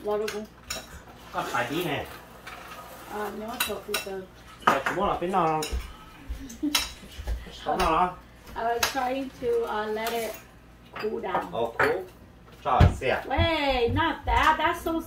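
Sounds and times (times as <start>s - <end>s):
utensils clinking on plates: 0.1s - 8.1s, 8.8s - 12.2s
people talking: 3.1s - 4.3s, 12.8s - 15.0s.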